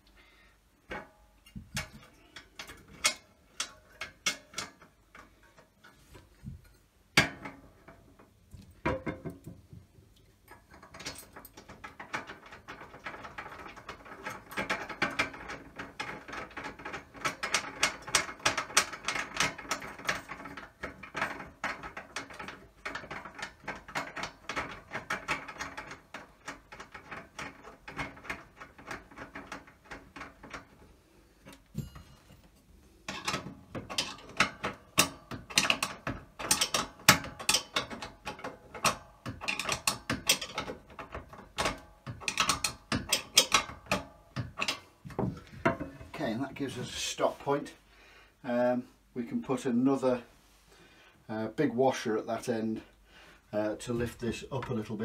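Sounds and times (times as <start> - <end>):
metal fittings clicking and knocking: 0.8 - 47.0.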